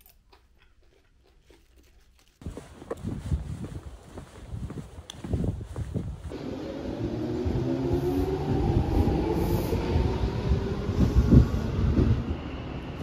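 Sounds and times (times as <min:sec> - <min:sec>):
train wheels rumbling: 0:06.2 - 0:13.0
electric train motor whine: 0:06.4 - 0:12.8.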